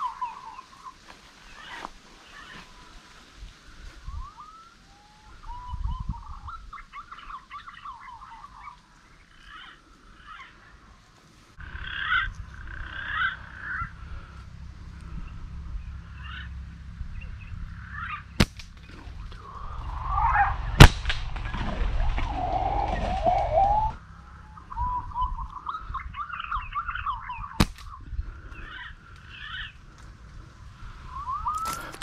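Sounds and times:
birds whistling and warbling: 4.0s - 10.6s, 17.1s - 29.8s, 30.7s - 32.0s.

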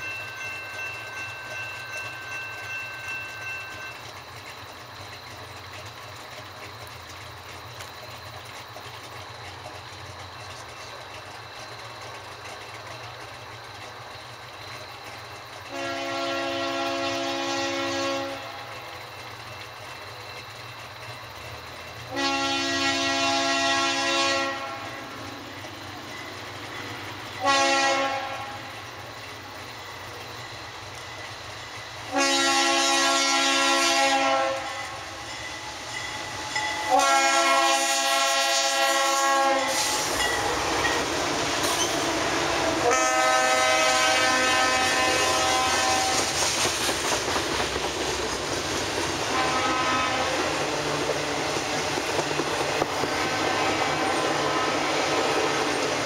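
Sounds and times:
train rumbling: 0.0s - 56.0s
train horn chord: 15.7s - 18.8s, 22.1s - 25.1s, 27.4s - 28.8s, 32.1s - 35.2s, 36.2s - 40.1s, 42.8s - 46.4s, 49.3s - 50.8s, 53.2s - 55.2s.

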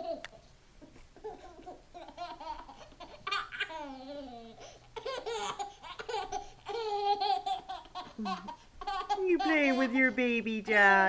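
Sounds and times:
baby laughing: 1.2s - 10.0s.

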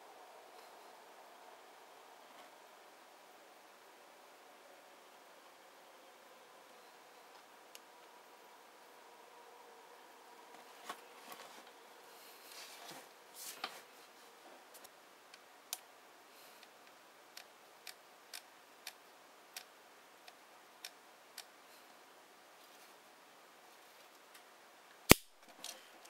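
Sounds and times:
handling rustle: 10.6s - 14.9s.

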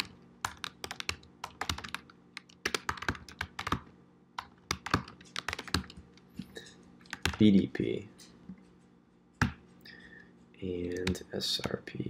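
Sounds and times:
keyboard typing: 0.0s - 6.2s, 7.1s - 7.6s, 10.8s - 11.8s.

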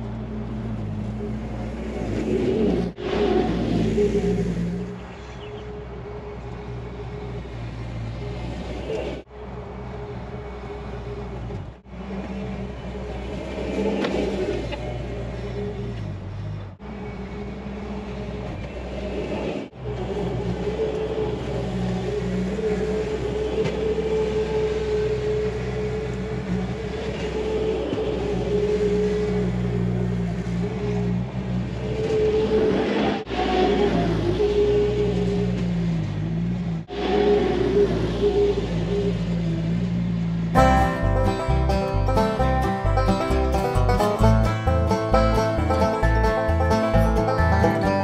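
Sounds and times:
diesel engine running under load: 38.0s - 48.0s.

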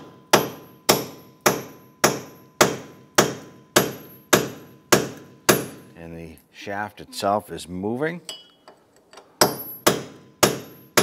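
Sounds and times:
hammer striking steel punch: 0.0s - 5.9s, 9.4s - 11.0s.

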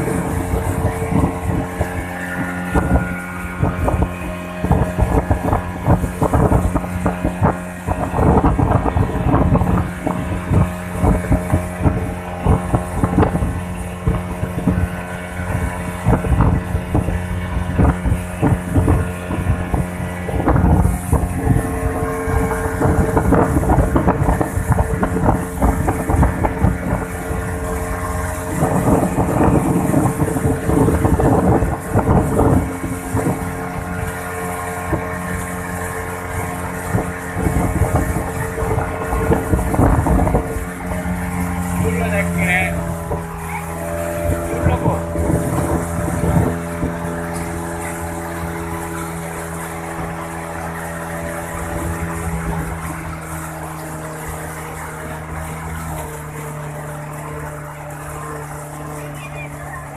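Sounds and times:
hull knocking on water: 0.0s - 59.9s
motorboat engine running: 0.0s - 59.9s
wind on microphone: 0.0s - 59.9s.

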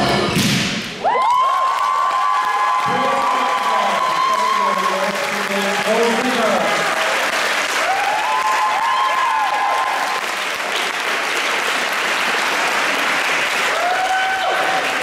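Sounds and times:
shouted cheers: 1.0s - 10.4s, 13.6s - 15.0s
audience applauding: 1.0s - 15.0s.

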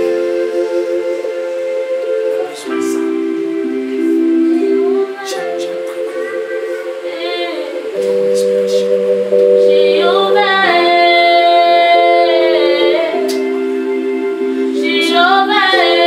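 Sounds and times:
long held chords: 0.0s - 16.0s
voices singing worship music: 0.0s - 16.0s.

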